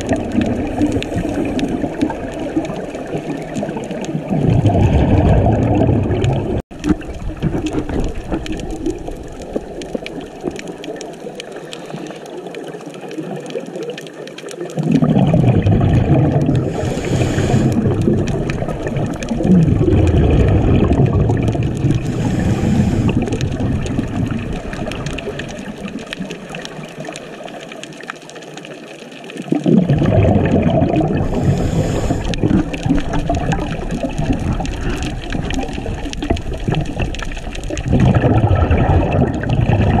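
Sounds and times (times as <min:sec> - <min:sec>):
underwater exhaust bubbles gurgling: 0:00.0 - 0:40.0
underwater hiss: 0:00.3 - 0:03.5, 0:11.4 - 0:12.8, 0:16.4 - 0:18.6, 0:21.8 - 0:23.7, 0:30.9 - 0:33.8.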